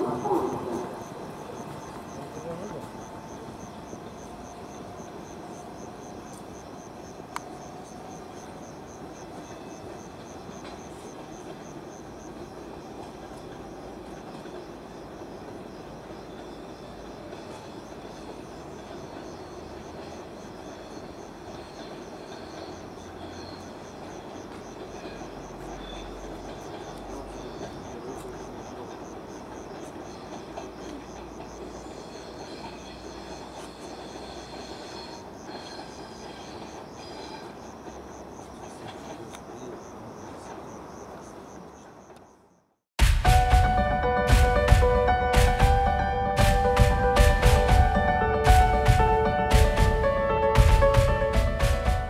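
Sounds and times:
cricket chirping: 0.0s - 42.8s
faint train rumble: 0.0s - 52.0s.

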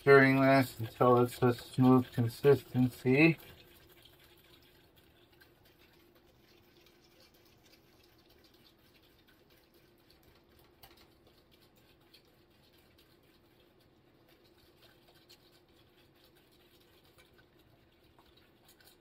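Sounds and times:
utensil stirring in saucepan: 0.0s - 19.0s.

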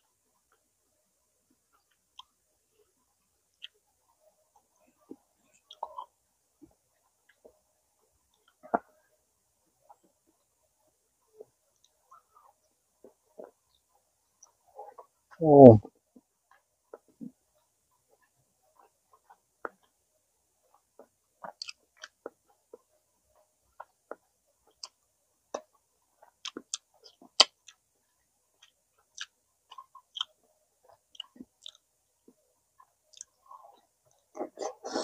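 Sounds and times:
person chewing: 5.6s - 6.1s, 20.7s - 22.4s, 23.8s - 27.8s, 28.6s - 31.8s, 32.8s - 35.0s.

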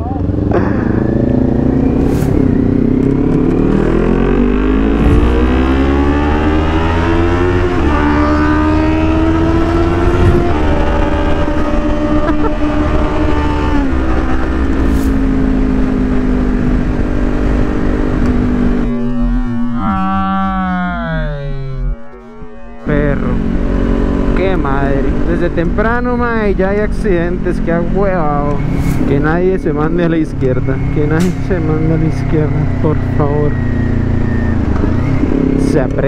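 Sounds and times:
motorcycle engine accelerating: 0.0s - 36.0s
wind rush on microphone: 9.9s - 13.0s.

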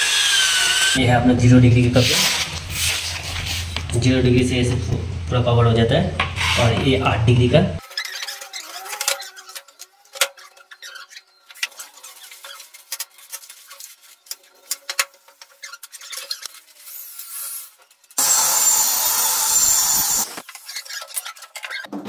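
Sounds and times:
electric drill drilling into board: 0.0s - 1.0s, 18.2s - 20.4s.

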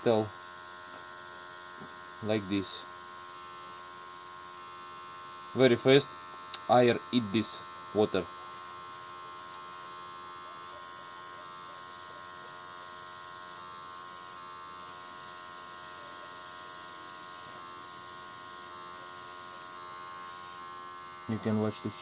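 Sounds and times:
airbrush compressor buzzing: 0.0s - 22.0s.

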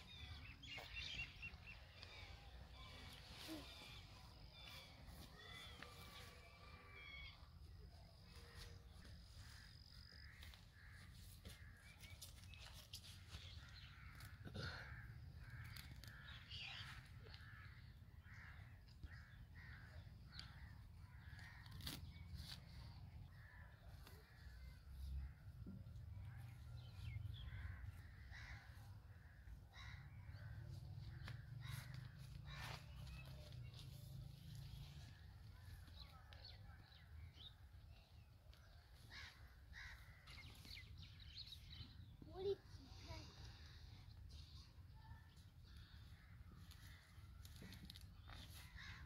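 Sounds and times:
small birds chirping: 0.0s - 49.0s
crows cawing: 9.6s - 11.8s, 13.6s - 22.0s, 23.3s - 25.4s, 27.0s - 33.2s, 38.6s - 40.8s, 45.6s - 49.0s.

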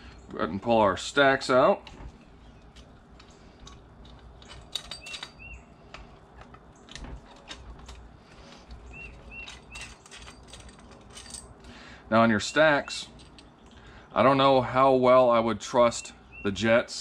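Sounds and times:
small brass parts set down: 1.8s - 11.8s
screwdriver clicks and metal taps: 2.6s - 11.5s.

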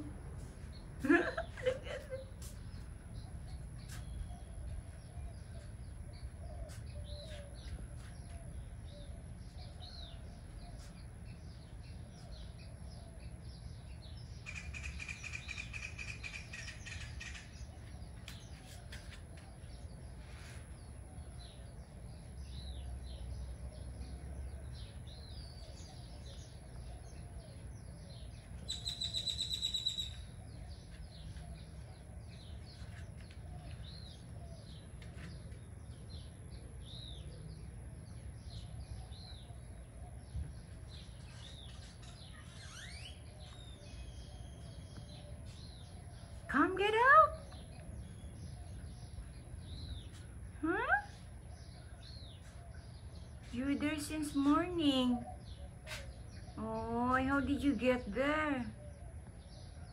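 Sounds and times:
small birds chirping: 0.0s - 59.9s
bird trill: 28.6s - 30.4s, 41.3s - 46.5s.

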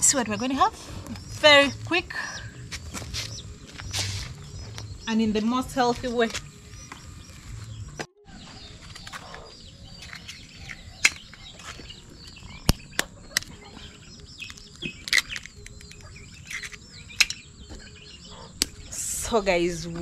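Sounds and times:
small birds chirping: 0.0s - 20.0s
egg shell cracking with spoon: 14.4s - 17.4s.

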